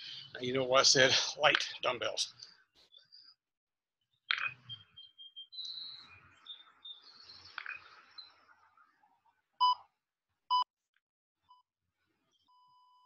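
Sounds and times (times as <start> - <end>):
birds chirping: 4.3 - 9.2.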